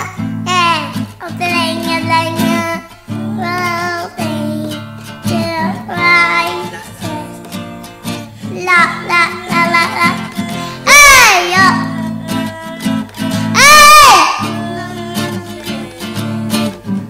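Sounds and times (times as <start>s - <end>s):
acoustic guitar: 0.0s - 17.0s
girl singing: 0.0s - 17.0s.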